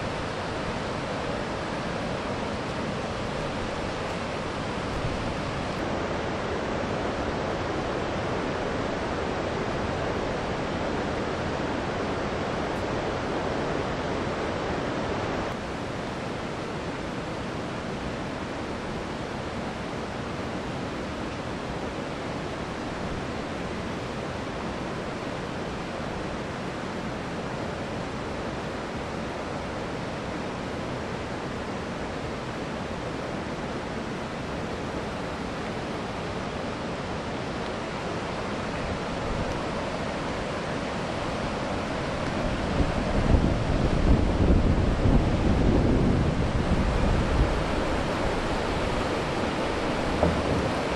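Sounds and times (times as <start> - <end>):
river water rushing: 0.0 - 50.9.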